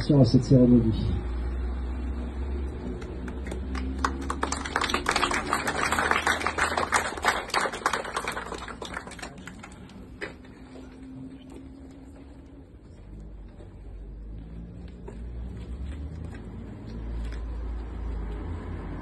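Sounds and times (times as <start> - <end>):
crowd applauding: 2.9 - 10.2.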